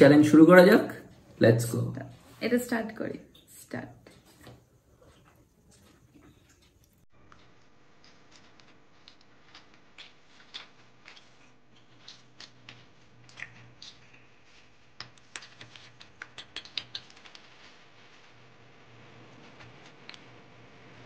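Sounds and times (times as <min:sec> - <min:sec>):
faint room hum: 0:00.0 - 0:21.0
chewing and smacking: 0:04.0 - 0:14.3.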